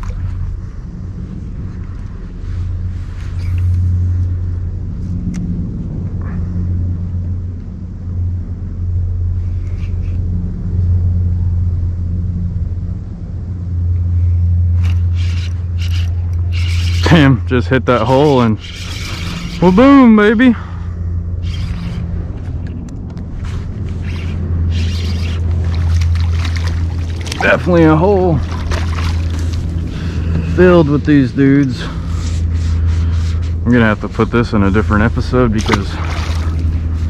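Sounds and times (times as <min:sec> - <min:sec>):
low rumble: 0:00.0 - 0:37.0
steady low hum: 0:00.0 - 0:37.0
fish splashing at surface: 0:25.3 - 0:27.6, 0:28.3 - 0:29.8, 0:35.6 - 0:36.7.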